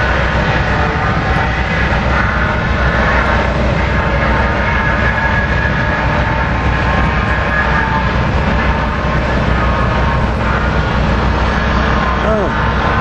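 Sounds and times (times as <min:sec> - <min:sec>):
ship engine drone and rumble: 0:00.0 - 0:13.0.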